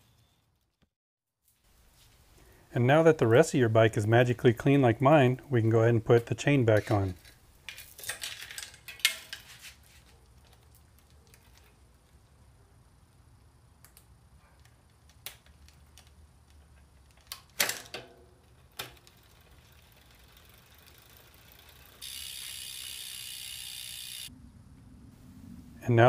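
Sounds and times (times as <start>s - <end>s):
metal bicycle chain clicks: 6.7s - 9.5s, 15.1s - 24.3s
drivetrain ratcheting buzz: 18.8s - 24.3s.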